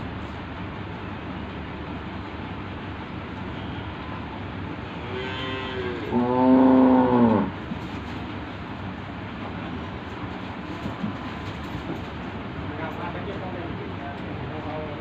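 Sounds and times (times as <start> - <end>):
cattle mooing: 4.9 - 7.6.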